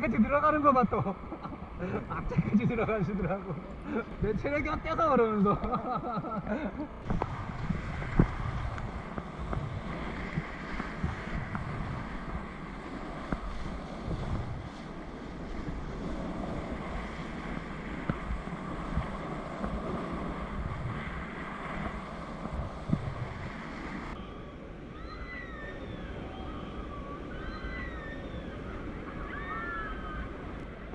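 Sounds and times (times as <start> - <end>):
wind noise on microphone: 0.0 - 30.9.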